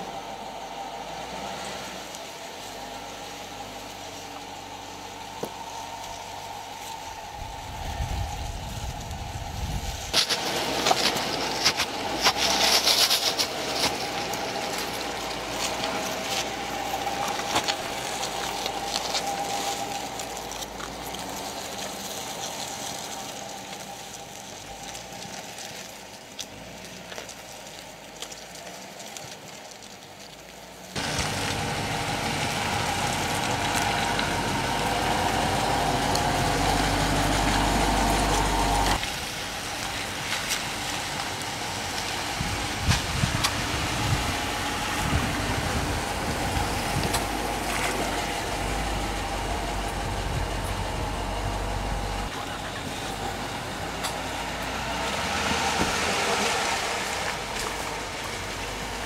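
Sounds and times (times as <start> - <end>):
car engine running low: 0.0 - 59.0
tyres crunching on wet rock: 8.0 - 59.0.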